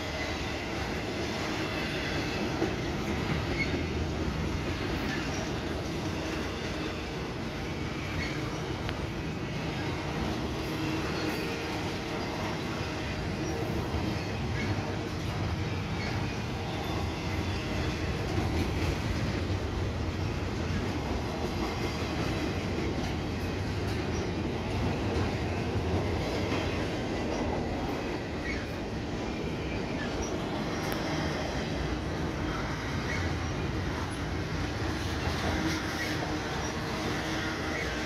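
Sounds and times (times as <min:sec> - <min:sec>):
freight train wheels rumbling: 0:00.0 - 0:38.0
faint high squeaks: 0:07.8 - 0:08.7.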